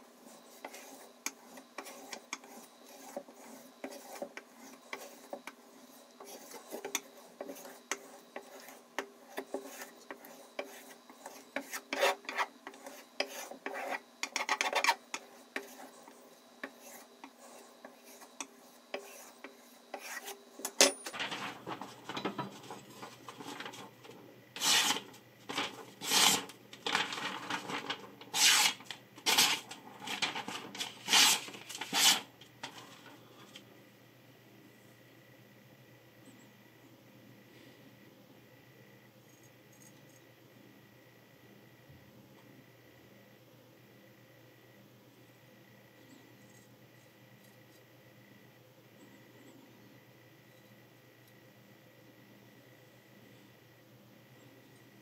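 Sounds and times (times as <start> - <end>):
knife blade rubbing on a strop: 0.3 - 20.8, 24.6 - 25.1, 26.0 - 26.5, 28.3 - 29.6, 30.8 - 32.3
knife slicing through paper: 24.6 - 32.9.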